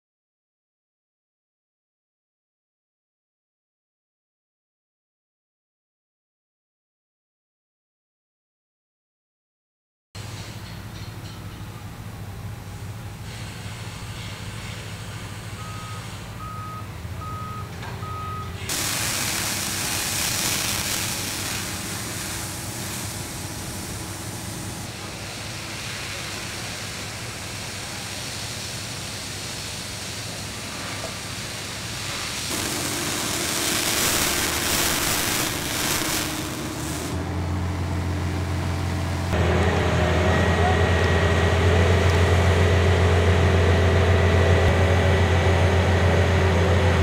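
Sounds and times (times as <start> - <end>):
reversing alarm beeping: 15.5 - 24.8
steady rushing noise: 18.7 - 30.8, 31.6 - 39.4
low engine hum: 37.2 - 47.0.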